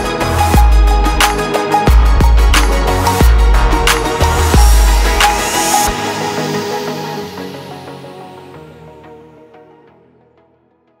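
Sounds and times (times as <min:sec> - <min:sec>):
background music with held notes: 0:00.0 - 0:11.0.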